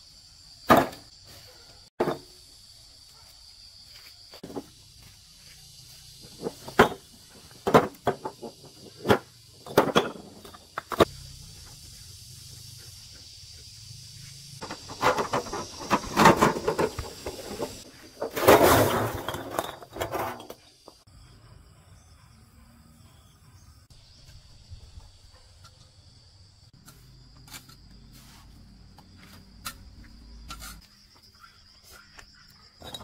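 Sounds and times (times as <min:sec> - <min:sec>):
high-pitched insect drone: 0:10.4 - 0:18.1.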